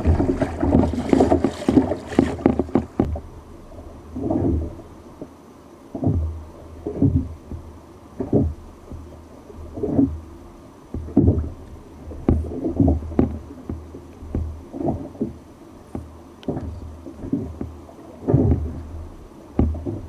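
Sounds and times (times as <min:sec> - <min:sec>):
water slapping against kayak hull: 0:00.0 - 0:03.3, 0:04.1 - 0:05.3, 0:05.9 - 0:20.0
sharp knocks: 0:19.6 - 0:20.0.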